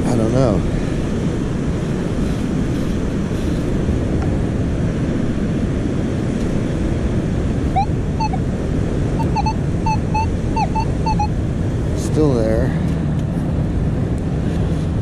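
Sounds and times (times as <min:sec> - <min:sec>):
steady surf: 0:00.0 - 0:15.0
wind buffeting microphone: 0:00.0 - 0:15.0
metal detector short beeps: 0:07.8 - 0:08.4, 0:09.2 - 0:11.3.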